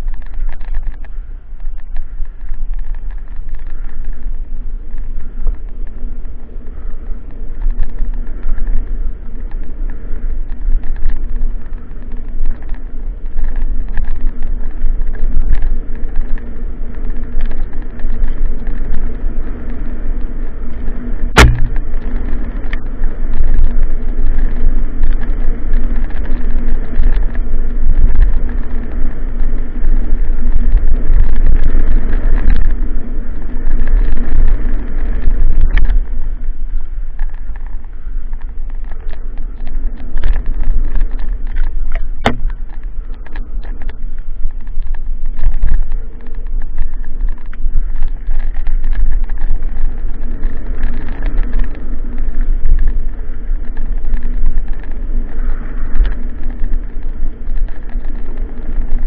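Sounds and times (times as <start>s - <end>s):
bike tyre rumble and rattle: 0.0s - 59.0s
wind noise on microphone: 0.0s - 59.0s
sharp knock: 21.4s - 21.8s, 42.2s - 42.5s.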